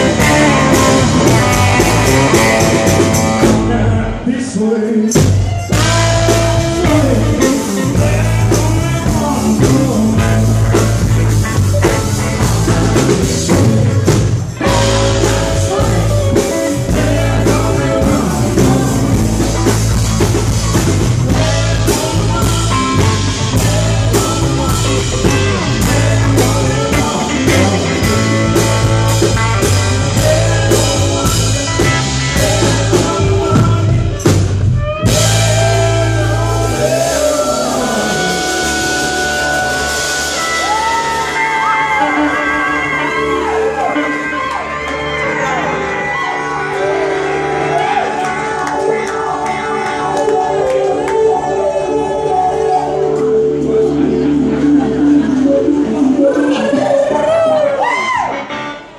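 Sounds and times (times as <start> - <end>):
pedal steel guitar: 0.0 - 4.1
live band playing: 0.0 - 58.9
person singing: 0.0 - 58.9.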